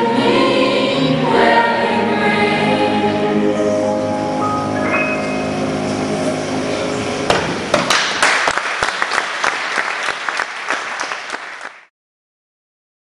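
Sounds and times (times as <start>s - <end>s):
choir final chord: 0.0s - 7.3s
audience applause: 7.7s - 11.9s.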